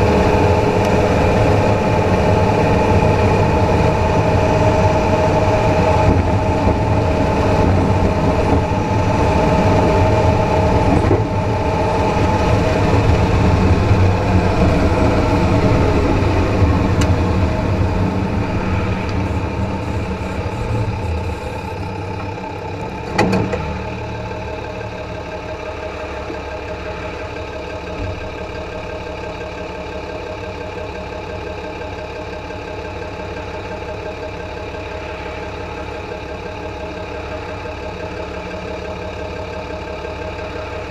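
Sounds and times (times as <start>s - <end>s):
tyre and road rumble: 0.0s - 24.4s
drivetrain running: 0.0s - 31.4s.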